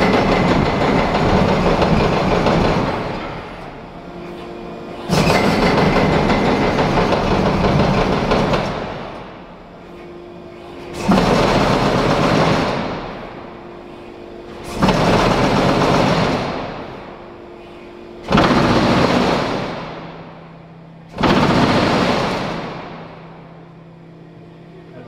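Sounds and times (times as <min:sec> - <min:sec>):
loud rattling clatter: 0:00.0 - 0:03.6, 0:05.1 - 0:09.2, 0:10.9 - 0:13.3, 0:14.6 - 0:17.0, 0:18.2 - 0:20.1, 0:21.1 - 0:23.1.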